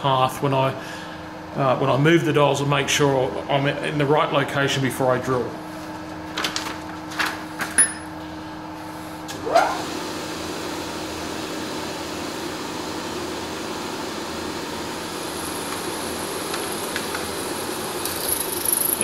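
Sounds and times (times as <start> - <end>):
milling machine spindle hum: 9.3 - 19.0.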